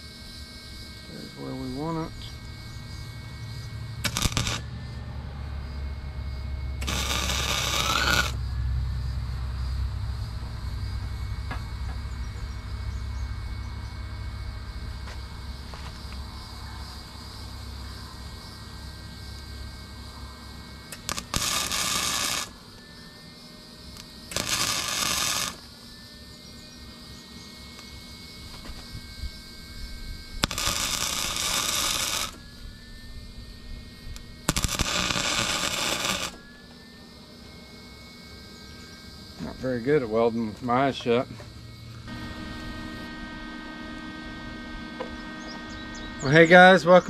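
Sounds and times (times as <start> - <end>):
welder crackling hiss: 0.0 - 4.8, 6.8 - 8.4, 14.9 - 25.9, 26.5 - 36.8, 39.0 - 47.0.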